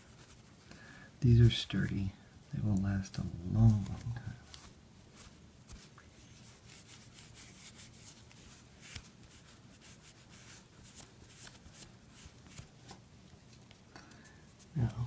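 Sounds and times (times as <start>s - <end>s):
cloth rubbing on wood: 3.7s - 12.3s.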